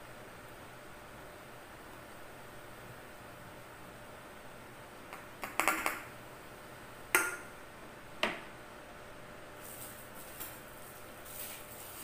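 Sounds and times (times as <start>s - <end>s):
small knocks on tabletop: 5.4s - 6.0s.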